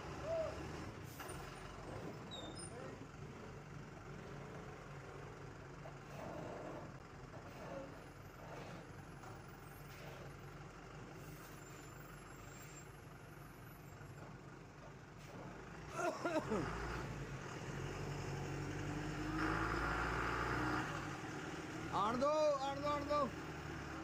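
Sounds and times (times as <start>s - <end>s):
truck diesel engine running: 0.0s - 19.0s.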